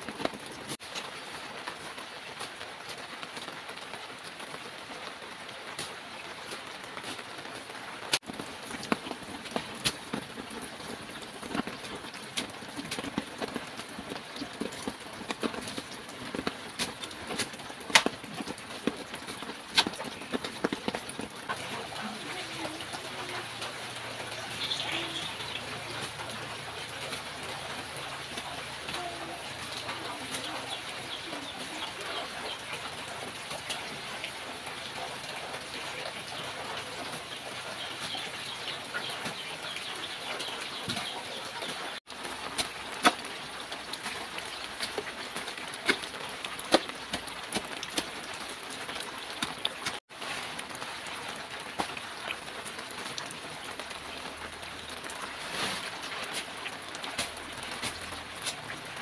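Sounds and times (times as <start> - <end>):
water running from tap: 8.4 - 50.0
birds calling: 21.6 - 33.9, 35.6 - 42.0.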